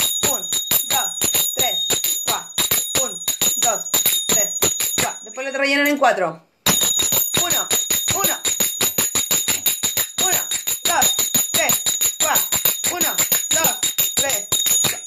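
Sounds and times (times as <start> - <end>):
finger cymbals struck rapidly: 0.0 - 5.2, 6.7 - 15.0.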